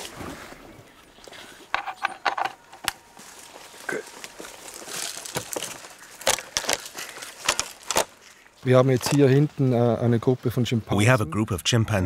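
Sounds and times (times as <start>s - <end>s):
crinkly rustling: 3.0s - 10.2s.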